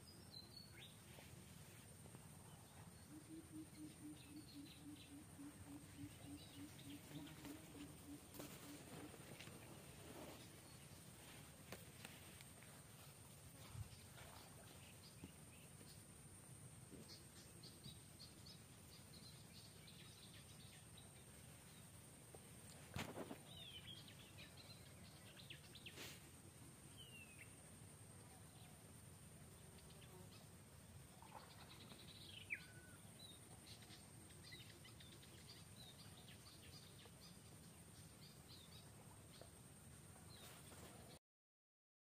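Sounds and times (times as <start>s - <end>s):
low background hiss: 0.0s - 41.2s
birds chirping: 2.2s - 12.6s.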